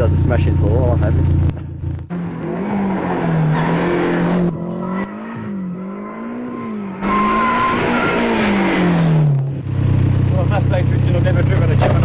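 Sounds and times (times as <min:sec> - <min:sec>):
turbocharged car engine revving: 0:00.0 - 0:12.0
tyres squealing: 0:05.3 - 0:08.6.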